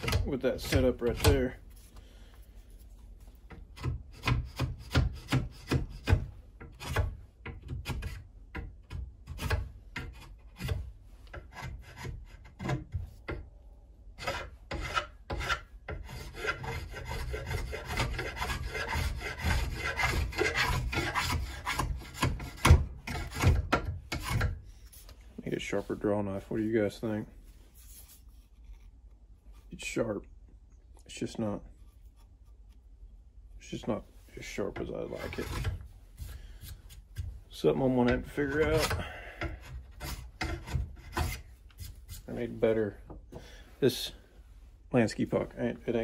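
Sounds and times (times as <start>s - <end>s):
stone rasping on steel blade: 14.2s - 24.6s, 38.0s - 42.4s.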